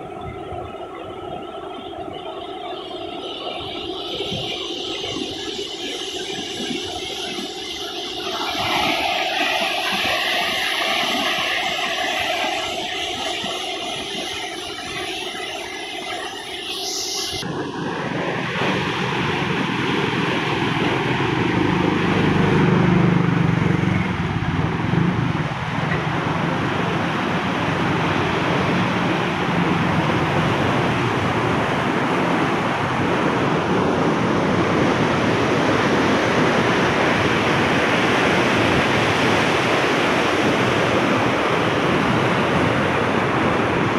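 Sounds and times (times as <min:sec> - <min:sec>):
water rushing through sluice gates: 0:00.0 - 0:16.6.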